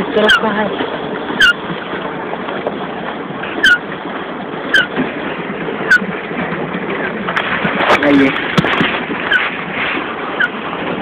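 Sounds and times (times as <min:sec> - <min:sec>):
wind and water hiss: 0:00.0 - 0:11.0
squeak with a click: 0:01.4 - 0:01.6, 0:03.6 - 0:03.8, 0:04.7 - 0:04.9.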